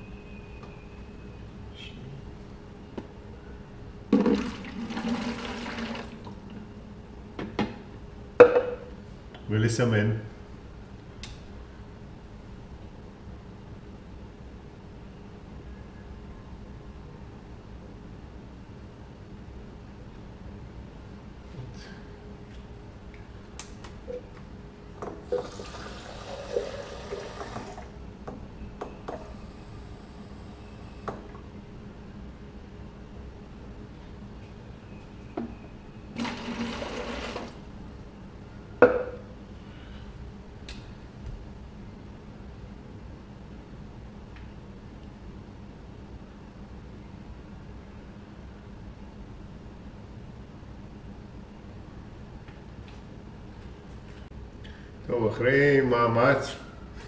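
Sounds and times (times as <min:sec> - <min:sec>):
tap water running: 0:04.2 - 0:06.6, 0:25.2 - 0:27.9, 0:36.2 - 0:37.6
water pouring into plastic jar: 0:25.3 - 0:27.9.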